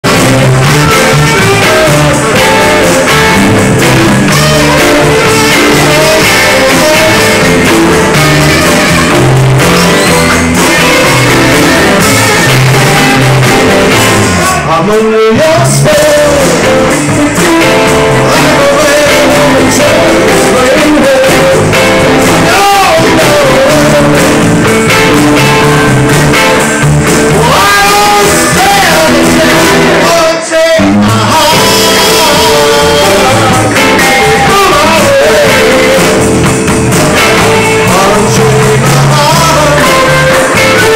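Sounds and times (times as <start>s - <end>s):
saxophone: 0.0s - 14.7s
drums: 0.0s - 40.9s
electric guitars: 0.0s - 40.9s
man singing: 0.0s - 40.9s.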